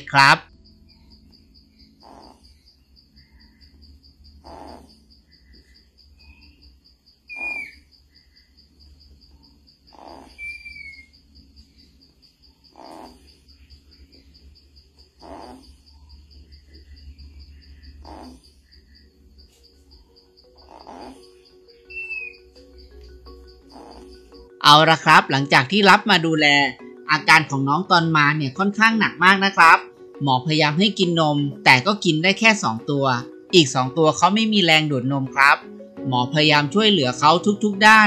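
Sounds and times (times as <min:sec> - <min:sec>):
frog calling: 0:00.0 - 0:38.0
high-pitched insect trill: 0:00.0 - 0:38.0.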